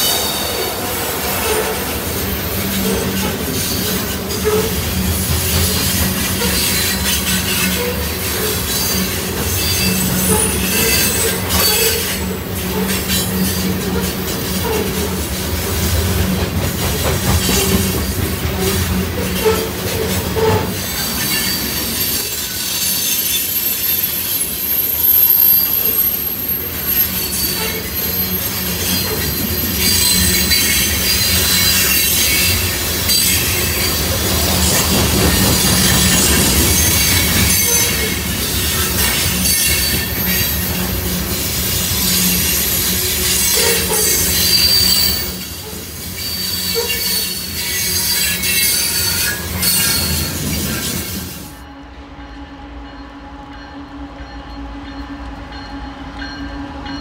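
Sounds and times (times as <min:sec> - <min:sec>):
train wheels rumbling on rail: 0:00.0 - 0:57.0
high-pitched wheel squeal: 0:06.4 - 0:15.2, 0:18.6 - 0:34.0, 0:43.3 - 0:51.1.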